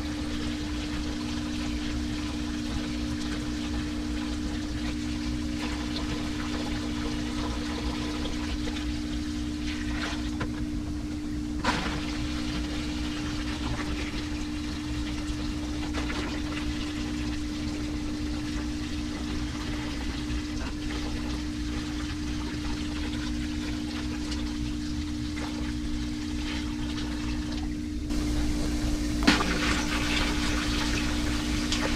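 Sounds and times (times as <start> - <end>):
steady low hum: 0.0 - 31.9
water splashing into aquarium: 11.6 - 31.9.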